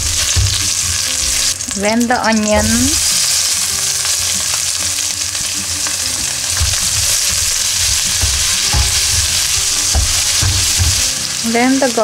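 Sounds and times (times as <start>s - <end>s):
onion sizzling in oil: 0.0s - 12.0s
spatula knocking against pot: 6.5s - 11.2s.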